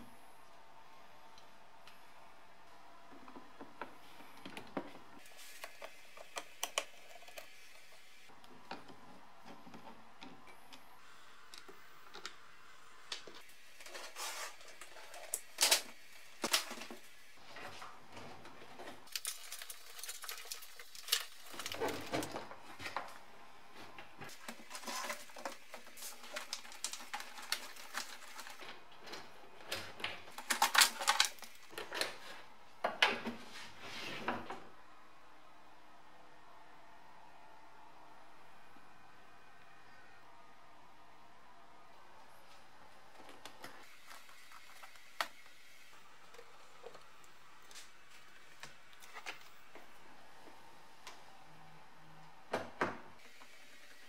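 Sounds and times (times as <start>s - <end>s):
plastic and metal parts rattling: 24.4s - 32.3s.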